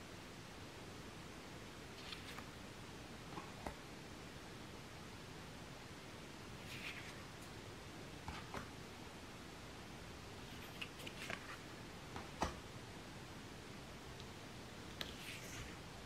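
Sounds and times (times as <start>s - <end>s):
faint steady hiss: 0.0s - 16.0s
cards clicking and sliding: 2.0s - 2.5s, 6.6s - 7.2s, 10.5s - 11.6s, 14.9s - 15.8s.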